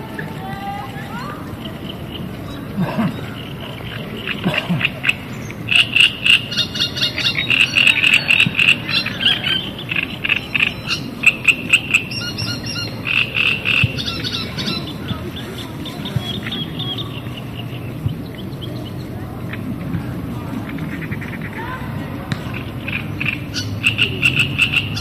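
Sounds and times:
frogs croaking: 1.1s - 25.0s.

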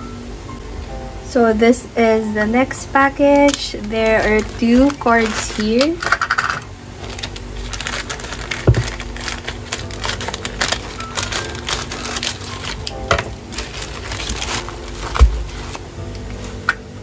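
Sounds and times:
plastic mailer crinkling: 3.3s - 16.7s
scissors cutting plastic: 3.3s - 16.8s.

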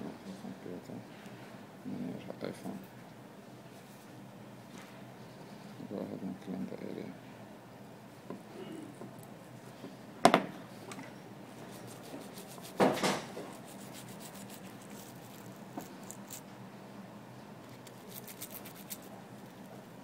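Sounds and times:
toothbrush scrubbing a port: 11.6s - 12.8s, 13.4s - 16.4s, 17.7s - 19.6s.

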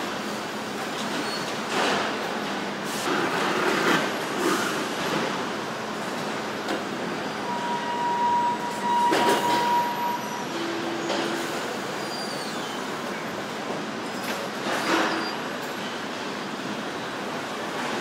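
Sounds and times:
factory machinery noise: 0.0s - 18.0s
electronic tone: 7.5s - 11.0s.

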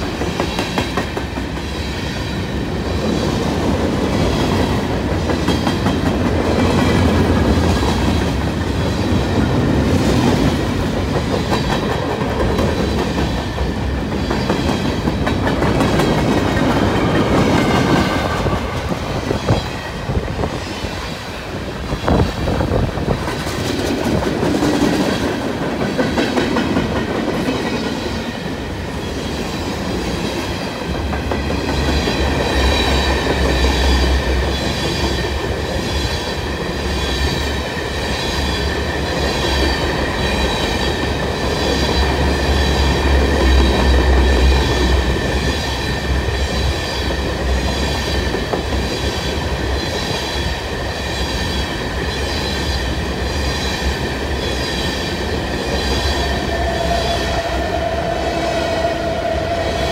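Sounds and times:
freight train wheels rumbling: 0.0s - 59.9s
high-pitched wheel squeal: 55.8s - 59.9s.

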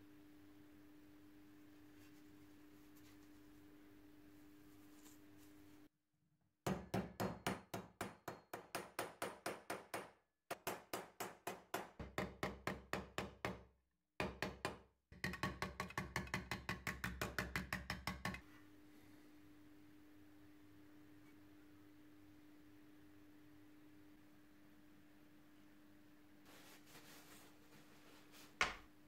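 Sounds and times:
hammer tapping sheet metal: 6.7s - 13.6s.

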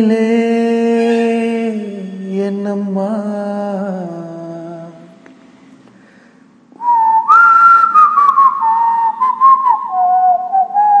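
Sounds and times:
person whistling a slow melody: 6.8s - 11.0s.

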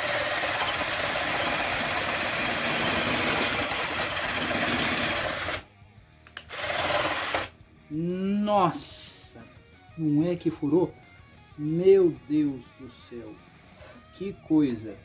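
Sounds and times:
drill boring through wood: 0.0s - 5.6s, 6.4s - 7.5s.

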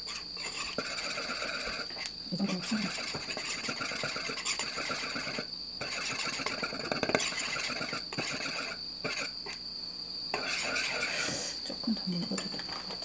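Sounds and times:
steady high-pitched whine: 0.0s - 13.0s
wire whisk beating batter in bowl: 0.1s - 9.3s, 10.4s - 11.3s.

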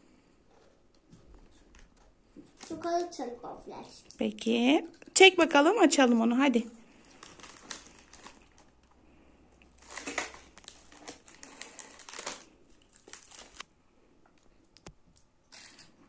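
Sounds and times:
plastic wrappers crinkling: 6.8s - 9.0s, 9.6s - 13.7s.

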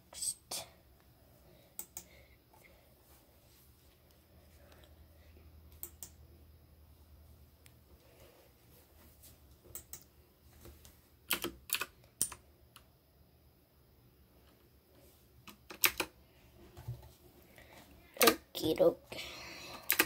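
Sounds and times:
keyboard keys clicking: 11.3s - 12.4s, 15.5s - 16.1s.

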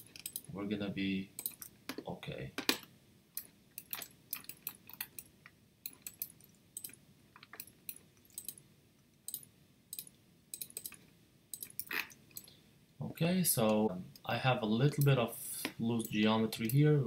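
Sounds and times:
mouse and keyboard clicks: 1.4s - 1.7s, 3.4s - 5.3s, 5.9s - 8.6s, 9.3s - 11.0s.

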